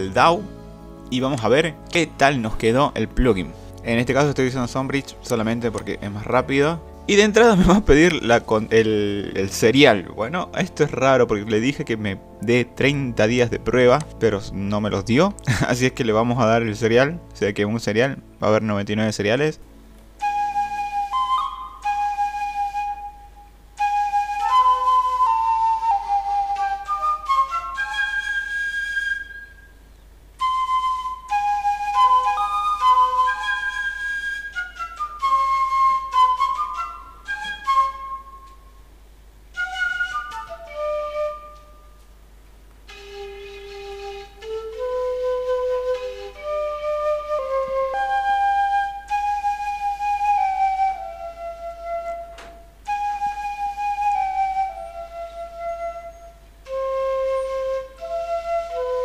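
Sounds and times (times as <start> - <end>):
sampled flute melody: 0.0 - 18.9, 19.7 - 59.0
breath noise: 3.5 - 3.8.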